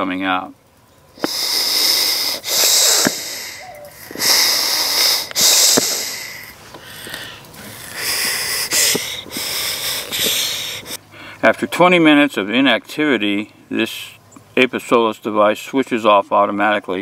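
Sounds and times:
bellows puffing air: 1.2 - 11.4.

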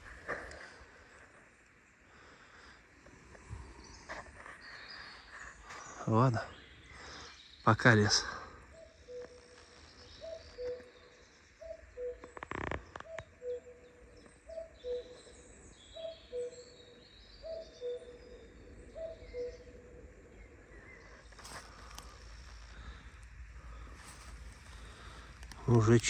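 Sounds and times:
songbirds chirping: 0.0 - 26.0
cuckoo calling: 8.7 - 20.1.

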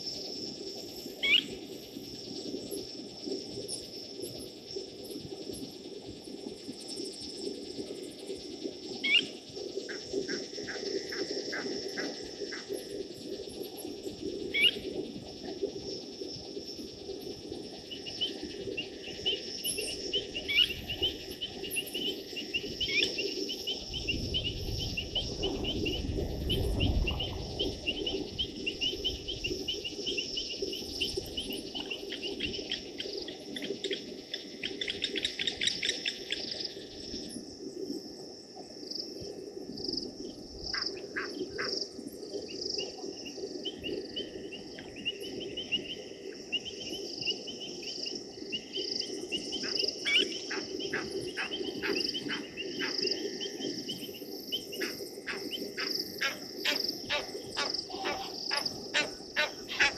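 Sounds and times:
night insects chirring: 0.0 - 59.9
lapwing alarm calls: 54.8 - 59.9.

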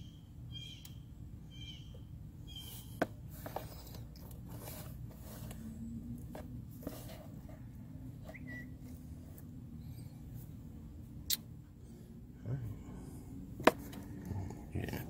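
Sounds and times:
bird chirping: 0.0 - 3.0, 8.2 - 8.8
steady low hum: 0.0 - 15.0.

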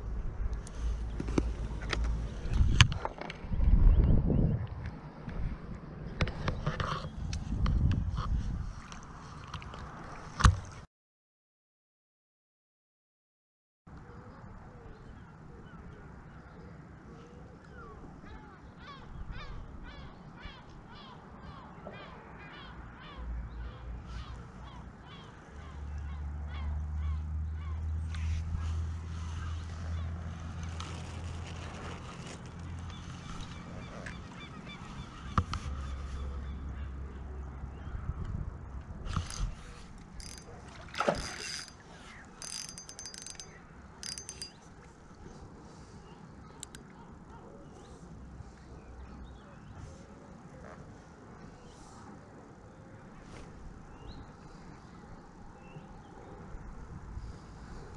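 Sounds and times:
birds calling: 32.7 - 38.0
spinning reel gears whirring: 39.2 - 39.6, 40.2 - 41.8, 42.4 - 44.6.

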